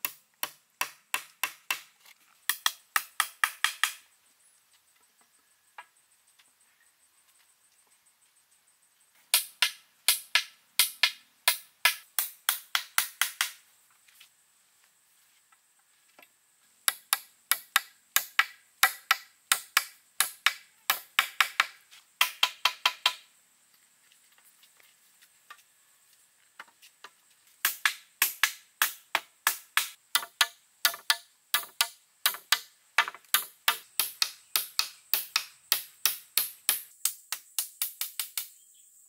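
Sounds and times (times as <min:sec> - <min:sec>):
hand tool chopping wood: 0:00.0 - 0:01.9, 0:02.5 - 0:04.0, 0:09.3 - 0:13.6, 0:16.9 - 0:23.2, 0:27.6 - 0:38.5.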